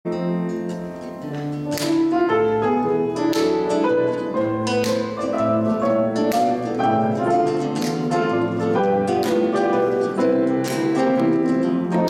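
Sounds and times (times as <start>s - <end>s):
grand piano chords and melody: 0.1s - 12.0s
plucked string instrument: 0.1s - 12.0s.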